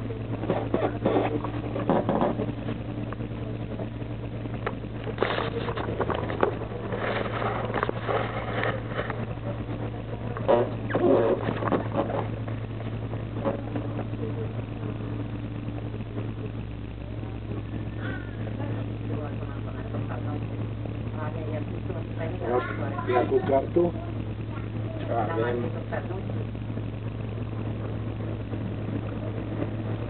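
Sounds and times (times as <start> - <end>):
clatter and rattling: 0.0 - 14.4
diesel bus engine idling: 0.0 - 30.0.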